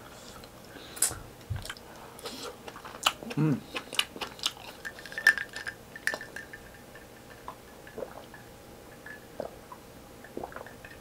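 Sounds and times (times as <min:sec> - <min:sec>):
person swallowing: 0:10.4 - 0:10.7.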